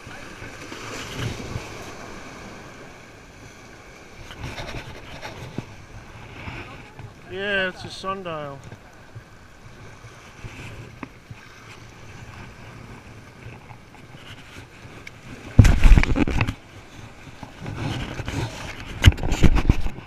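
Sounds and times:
surf: 0.0s - 20.0s
wind: 0.0s - 20.0s
rustling and knocks on microphone: 4.3s - 5.7s, 15.5s - 16.6s, 17.4s - 20.0s.

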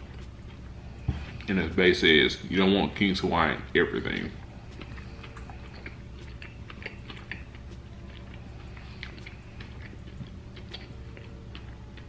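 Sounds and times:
low steady hum: 0.0s - 12.0s
man chewing food: 0.0s - 12.0s
wet mouth clicks: 4.1s - 12.0s.

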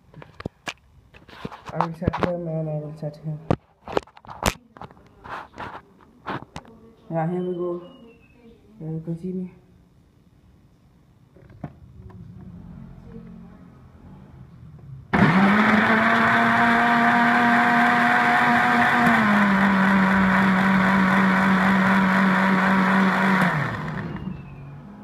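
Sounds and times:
electric blender motor running: 15.1s - 24.4s.

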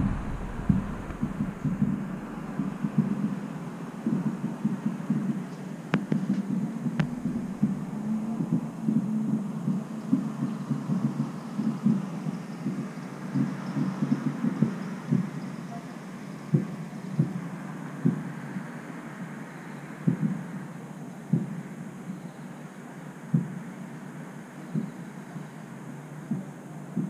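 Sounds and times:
wind buffeting microphone: 0.0s - 5.4s, 6.0s - 15.3s.

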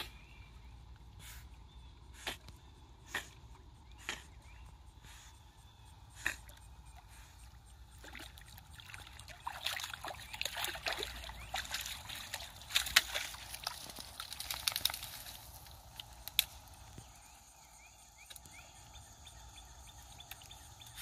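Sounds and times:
dog splashing in water: 8.0s - 16.0s
water dripping: 8.0s - 17.0s.

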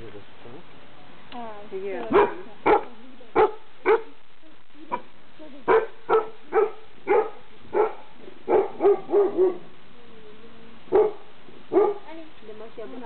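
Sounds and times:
puppy barking: 2.1s - 4.2s, 5.7s - 9.7s, 10.9s - 12.1s.

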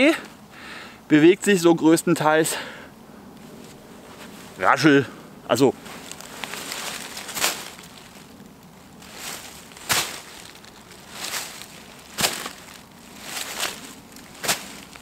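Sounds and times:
dry leaves crunching: 5.6s - 15.0s.

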